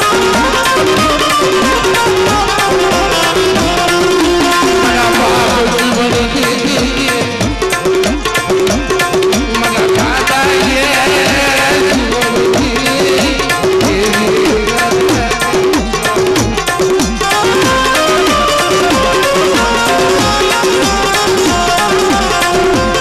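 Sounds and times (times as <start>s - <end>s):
loud drum beat: 0.0s - 23.0s
repeating melodic phrase: 0.5s - 6.8s.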